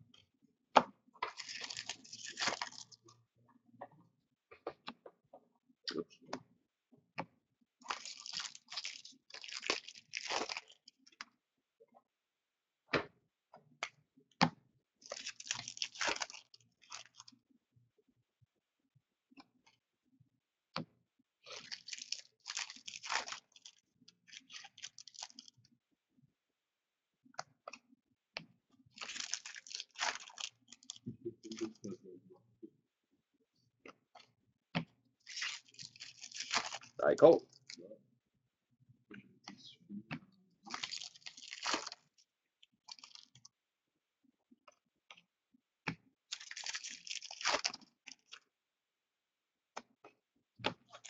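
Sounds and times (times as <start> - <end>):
wrappers tearing and crinkling: 1.4 - 2.9, 7.9 - 10.8, 15.1 - 17.3, 21.5 - 25.5, 29.0 - 31.0, 35.3 - 37.0, 40.7 - 42.0, 42.9 - 43.4, 46.3 - 47.8.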